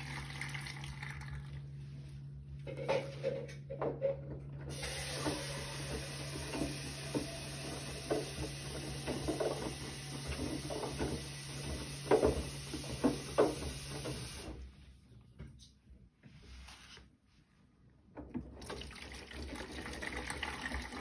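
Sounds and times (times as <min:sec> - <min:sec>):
washing machine motor hum: 0:00.0 - 0:15.0, 0:18.1 - 0:21.0
laundry sloshing and thudding in drum: 0:04.7 - 0:14.7.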